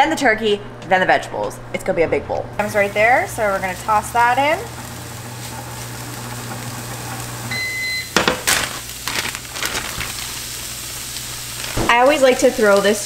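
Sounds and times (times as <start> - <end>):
microwave oven humming: 2.6 - 13.0
microwave beep: 7.1 - 8.5.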